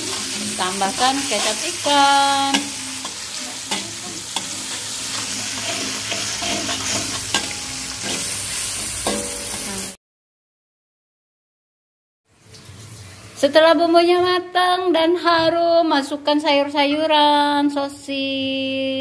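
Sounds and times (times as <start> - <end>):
metal spatula scraping a wok: 0.0 - 9.9
spice paste sizzling in oil: 0.0 - 10.0.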